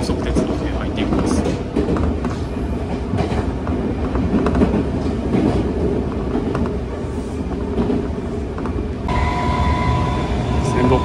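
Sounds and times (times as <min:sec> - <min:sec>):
train wheels rumbling on rail: 0:00.0 - 0:11.0.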